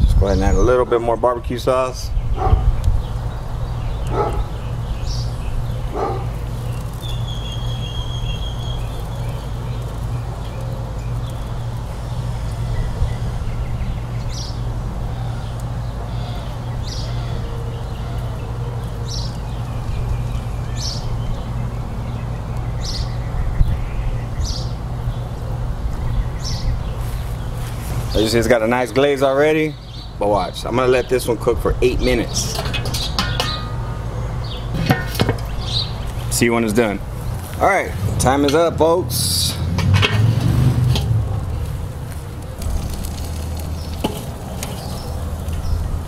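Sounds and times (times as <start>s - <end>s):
bird chirps: 2.2s - 11.5s
dog barking: 2.4s - 2.7s, 4.1s - 4.5s, 5.9s - 6.3s.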